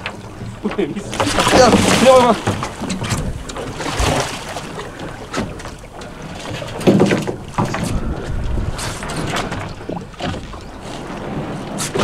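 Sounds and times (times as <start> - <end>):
water splashing against boat: 0.0 - 12.0
wind on microphone: 7.3 - 10.1.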